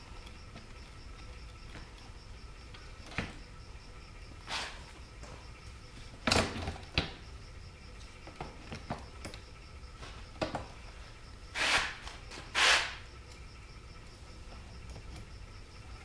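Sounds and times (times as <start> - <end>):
short scrapes: 11.5 - 13.0.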